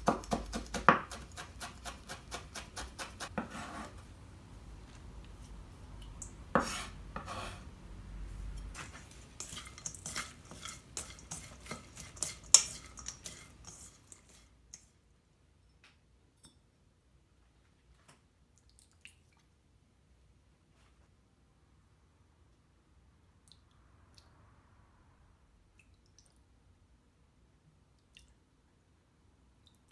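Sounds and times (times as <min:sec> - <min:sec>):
knife scraping in metal bowl: 0:01.1 - 0:04.0, 0:06.6 - 0:07.7, 0:08.6 - 0:14.9
metal clinking on bowl: 0:09.4 - 0:14.4.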